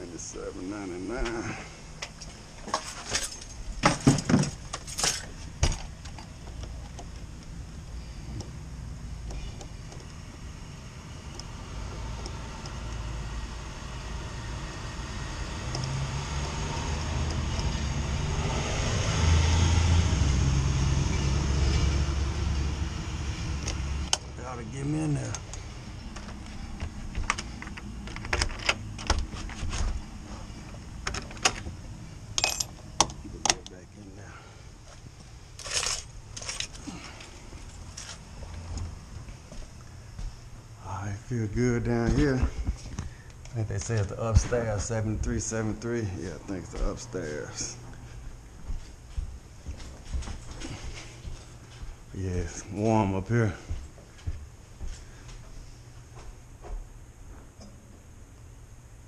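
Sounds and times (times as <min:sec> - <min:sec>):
key lockbox clicking and rattling: 0:27.3 - 0:28.8.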